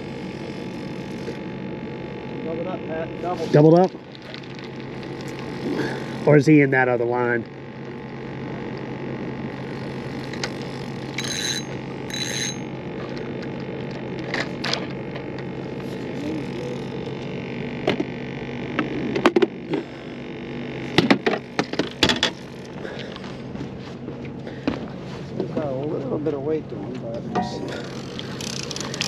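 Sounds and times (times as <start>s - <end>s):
steady low hum: 0.0s - 29.0s
high ringing chimes: 11.2s - 12.7s, 27.3s - 27.9s.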